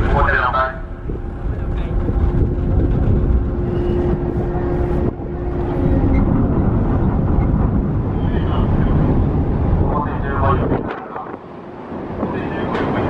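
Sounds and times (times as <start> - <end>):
ship machinery rumble: 0.0 - 13.0
steady hum: 0.0 - 13.0.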